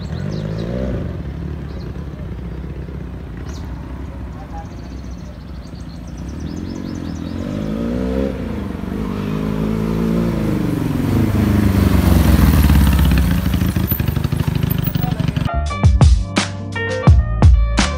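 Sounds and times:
motorcycle engine revving: 0:00.0 - 0:15.5.

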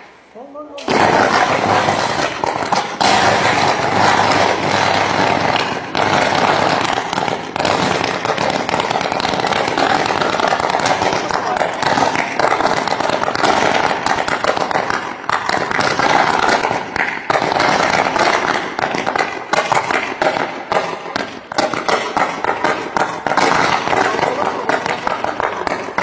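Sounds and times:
electrical arcing crackling: 0:00.8 - 0:16.7.

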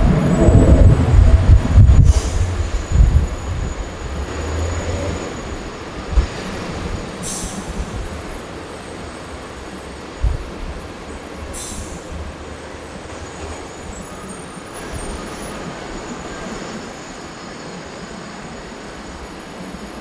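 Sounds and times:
jet engines running: 0:00.0 - 0:06.4.

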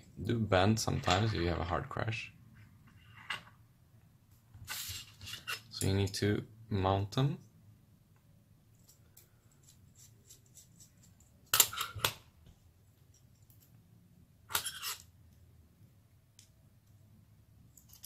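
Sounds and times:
small metal parts clicking: 0:17.7 - 0:18.0.

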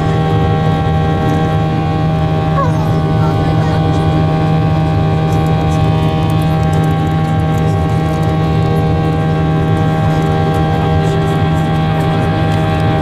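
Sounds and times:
jet engines drone in cabin: 0:00.0 - 0:13.0.

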